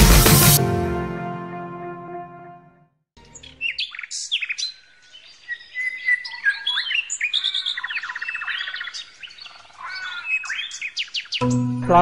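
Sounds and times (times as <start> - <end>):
forest birds singing: 3.2 - 12.0.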